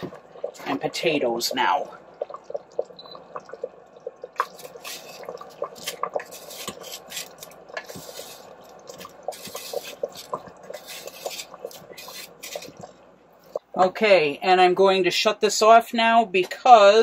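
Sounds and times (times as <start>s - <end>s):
thick gravy simmering: 0.0s - 13.6s.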